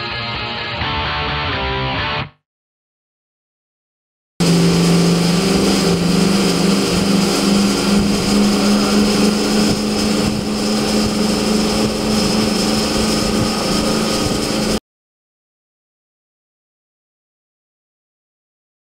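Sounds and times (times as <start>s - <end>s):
powerboat engines droning: 4.4s - 14.8s
water rushing: 4.4s - 14.8s
wind: 4.4s - 14.8s.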